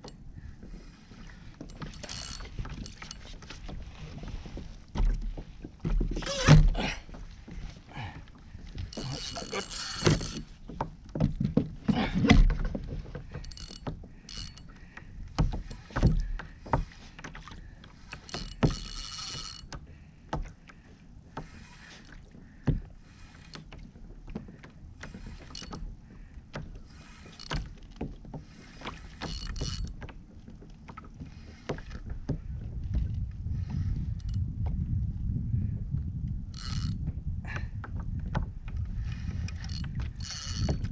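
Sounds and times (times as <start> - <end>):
reel whirring: 0.6 - 4.7, 8.6 - 10.6, 13.3 - 14.8, 15.5 - 19.8, 25.0 - 25.8, 26.9 - 30.0, 36.6 - 37.0, 39.4 - 40.9.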